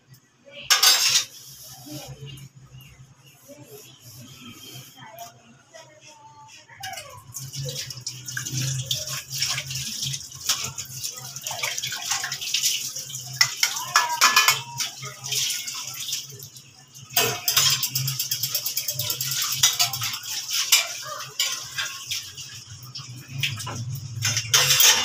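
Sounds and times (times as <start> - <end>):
dishes clinking and rattling: 0.6 - 2.1, 6.8 - 25.0.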